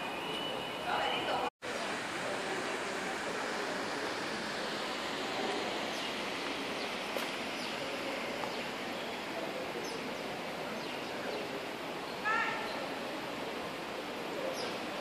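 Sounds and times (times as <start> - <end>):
faint high bird chirps: 0.0 - 1.4
fountain water hissing: 1.2 - 15.0.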